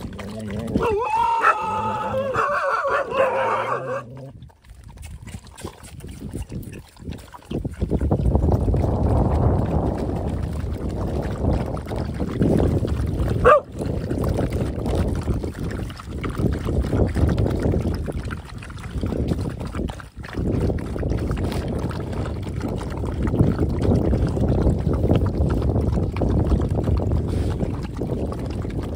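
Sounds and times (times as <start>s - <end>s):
dogs lapping liquid: 0.0s - 28.9s.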